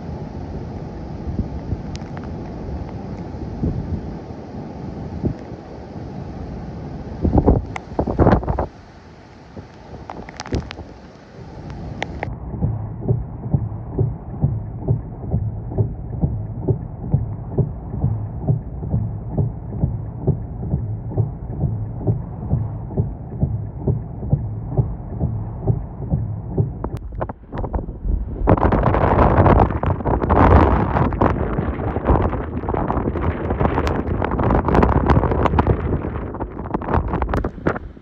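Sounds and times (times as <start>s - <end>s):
wind noise rushing: 0.0s - 38.0s
muffled low thumping: 12.0s - 38.0s.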